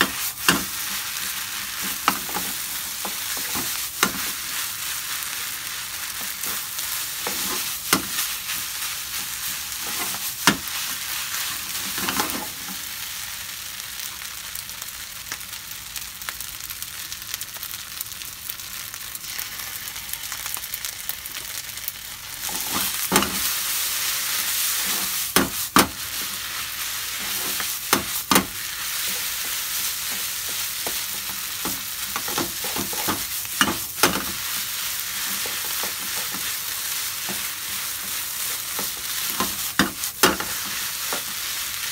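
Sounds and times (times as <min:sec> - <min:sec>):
food sizzling in a frying pan: 0:00.0 - 0:41.9
wooden spatula scraping: 0:06.1 - 0:12.8, 0:22.3 - 0:41.9.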